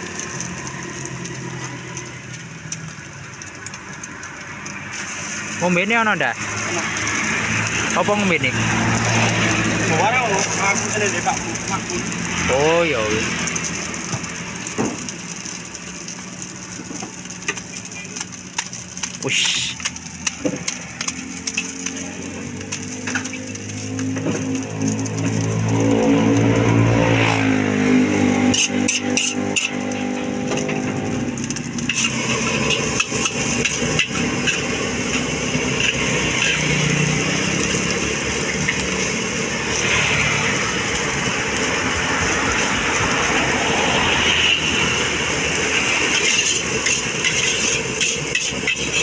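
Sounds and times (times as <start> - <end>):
frying sizzle: 0.0 - 49.0
metal spatula scraping a wok: 28.1 - 40.9, 44.2 - 49.0.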